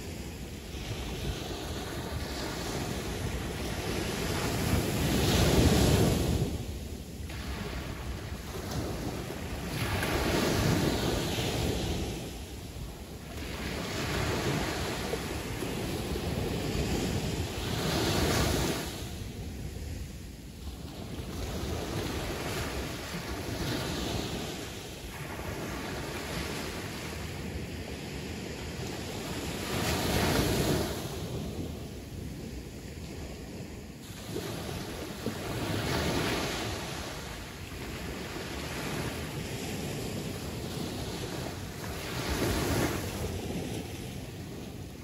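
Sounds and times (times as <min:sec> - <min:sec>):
sea waves breaking: 0:20.7 - 0:45.0.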